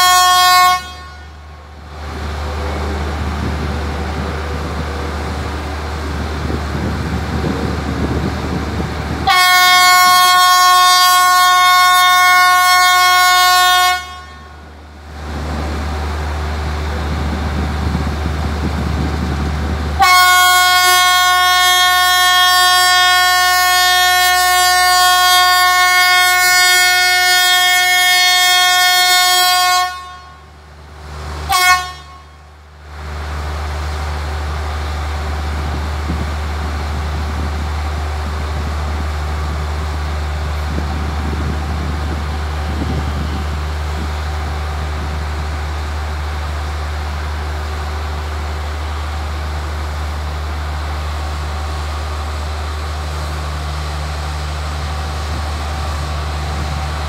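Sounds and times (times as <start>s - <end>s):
locomotive air horn: 0.0s - 1.5s, 9.2s - 14.7s, 20.0s - 30.5s, 31.5s - 32.5s.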